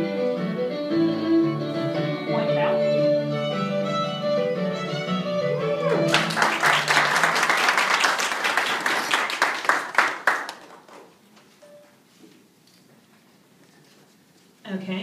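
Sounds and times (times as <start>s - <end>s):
audience applause: 5.8s - 11.1s.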